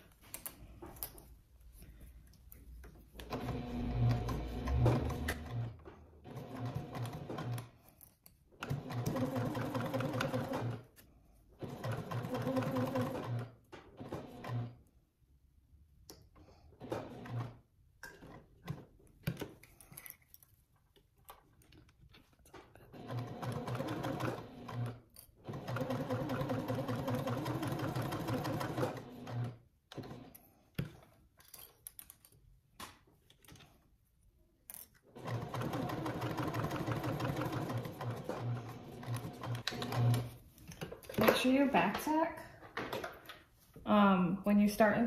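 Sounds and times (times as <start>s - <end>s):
sewing machine stitching: 3.2s - 7.8s, 8.6s - 10.9s, 11.6s - 14.8s, 16.7s - 18.9s, 22.9s - 30.4s, 35.1s - 40.4s.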